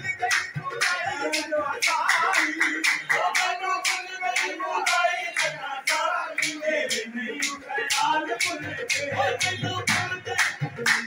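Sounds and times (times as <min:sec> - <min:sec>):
harmonium: 0:00.0 - 0:03.9
hand claps: 0:00.0 - 0:11.0
men singing: 0:00.0 - 0:11.0.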